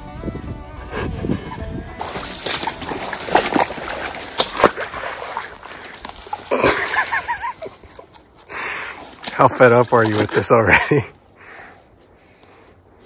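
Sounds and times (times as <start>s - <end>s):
reeds and grass rustling: 1.0s - 13.0s
footsteps wading through water: 1.3s - 11.0s.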